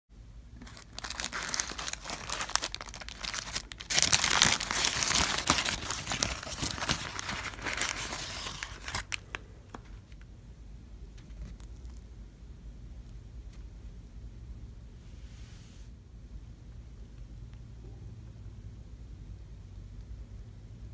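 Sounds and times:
paper wrapper crinkling: 0.6 - 10.2.

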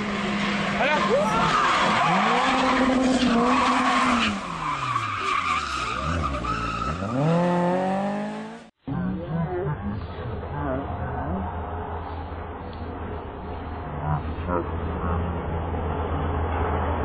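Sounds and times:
tyres skidding on tarmac: 0.0 - 8.7
rally car engines revving: 0.0 - 17.0.

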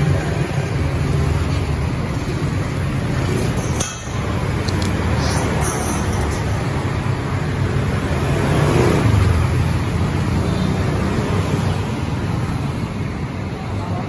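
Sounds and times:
road traffic rumble: 0.0 - 14.0
vehicle passing by: 7.6 - 12.6.

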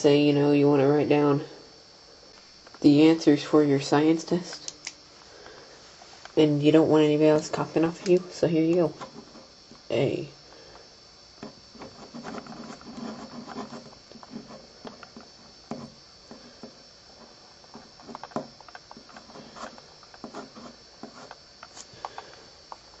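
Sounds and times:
faint steady hiss: 0.0 - 23.0
pen scratching on paper: 11.7 - 16.0, 19.0 - 21.9.

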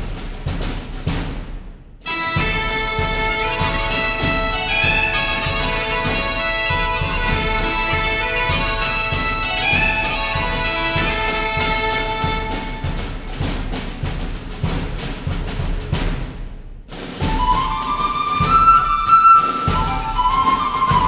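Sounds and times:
steady held tones: 2.0 - 13.3
reedy wind instrument tune: 2.0 - 13.5, 17.2 - 21.0.

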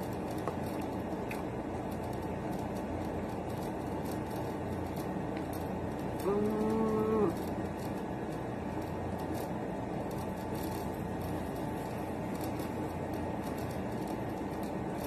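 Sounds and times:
woman humming while chewing: 6.2 - 7.4.

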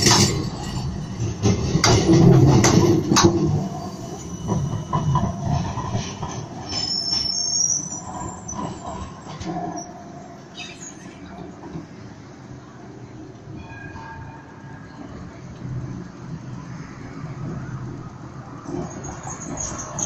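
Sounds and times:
tram wheels knocking over rail joints: 0.0 - 7.6
tram wheels squealing: 0.0 - 12.1, 13.1 - 20.0
tram rumble: 0.0 - 20.0.

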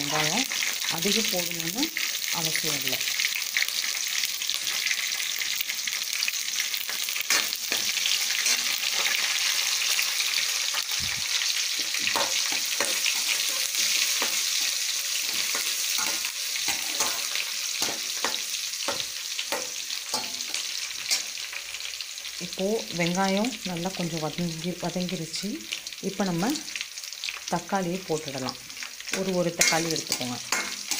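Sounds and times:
onion sizzling in hot oil: 0.0 - 30.9
spatula scraping metal pan: 6.9 - 9.2, 12.1 - 21.4, 29.1 - 30.9.

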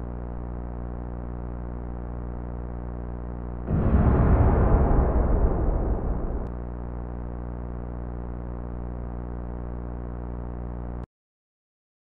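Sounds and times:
low synthesizer drone: 3.7 - 7.0.

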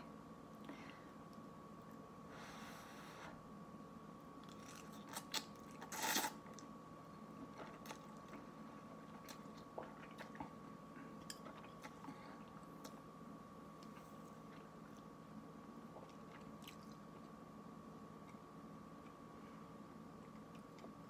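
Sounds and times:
chewing: 9.0 - 10.6.

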